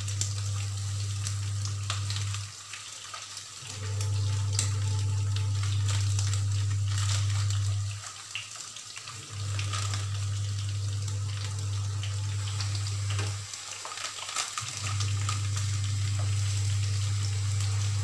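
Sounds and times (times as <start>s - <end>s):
potatoes frying in oil: 0.0s - 18.0s
steady low hum: 3.6s - 8.0s, 9.2s - 13.4s, 14.7s - 18.0s.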